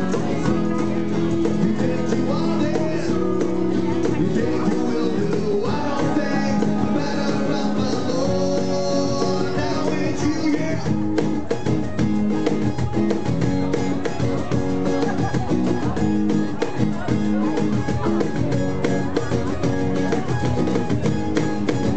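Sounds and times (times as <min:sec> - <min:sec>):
man singing: 0:00.0 - 0:11.2
acoustic guitars strumming: 0:00.0 - 0:21.9
cajon beat: 0:00.0 - 0:21.9.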